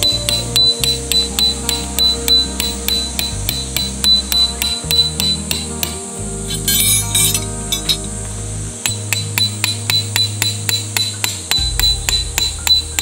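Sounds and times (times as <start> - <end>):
background music: 0.0 - 13.0
hammer striking metal tent peg: 8.9 - 13.0.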